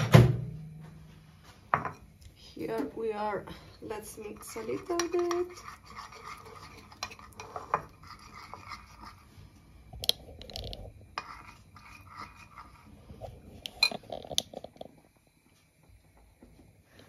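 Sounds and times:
metal spoon stirring in bowl: 3.8 - 14.8.

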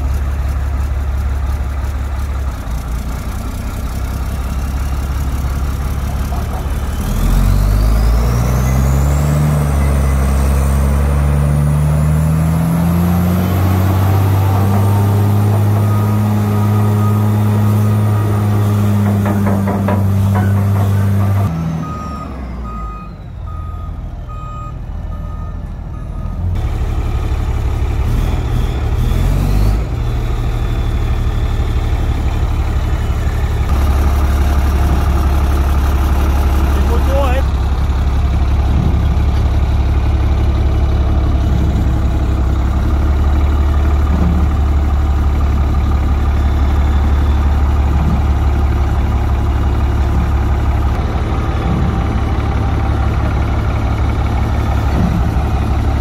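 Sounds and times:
diesel truck engine revving: 0.0 - 56.0
backup alarm beeps: 21.8 - 26.4.

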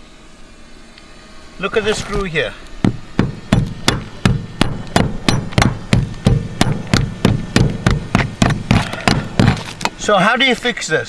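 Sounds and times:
sharp knocks: 2.8 - 10.0.

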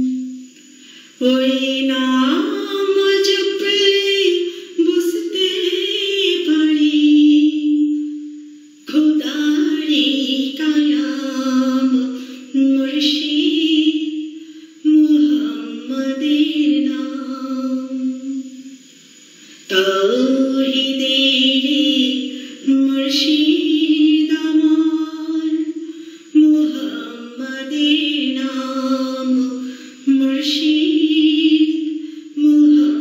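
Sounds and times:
woman singing: 0.0 - 18.6, 19.6 - 33.0.

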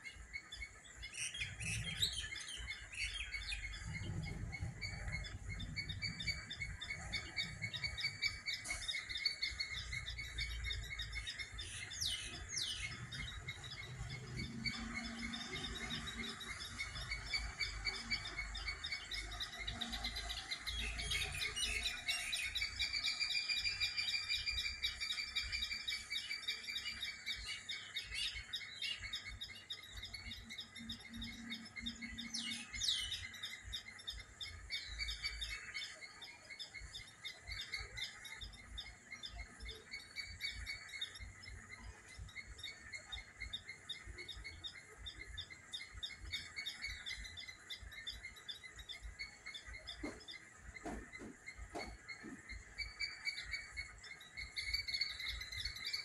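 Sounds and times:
birds chirping and singing: 0.0 - 56.0.

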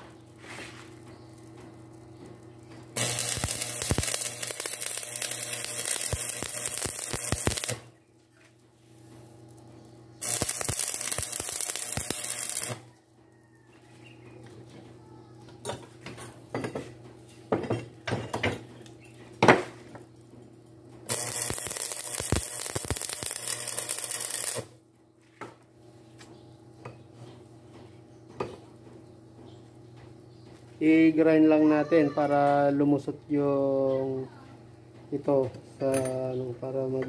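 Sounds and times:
welding arc crackling and hissing: 0.0 - 8.0, 9.5 - 12.9, 21.1 - 24.8.

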